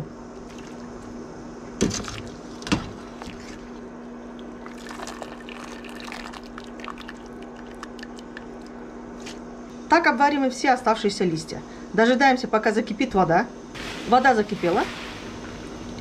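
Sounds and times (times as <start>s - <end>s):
steady low hum: 0.0s - 16.0s
water sloshing and dripping: 0.4s - 1.1s, 1.8s - 8.8s.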